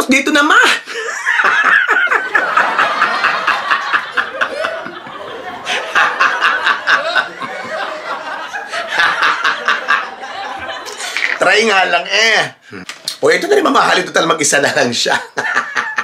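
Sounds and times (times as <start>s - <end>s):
man laughing: 0.9s - 10.0s, 15.2s - 16.0s.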